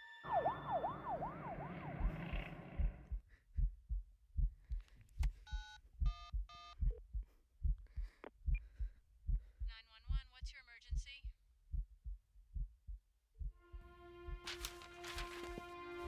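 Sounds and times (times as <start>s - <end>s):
heartbeat thumps: 1.9s - 14.5s.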